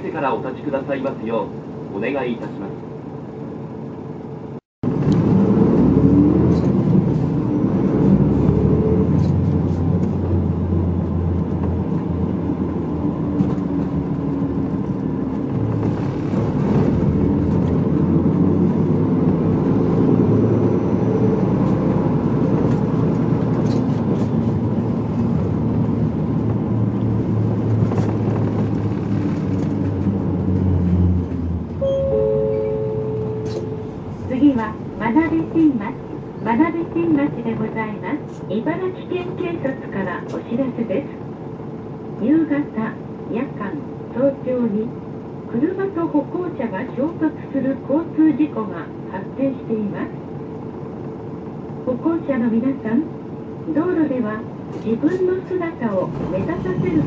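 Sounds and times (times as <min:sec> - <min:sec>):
bus diesel engine and road noise: 0:00.0 - 0:57.0
two-note falling chime: 0:31.8 - 0:33.9.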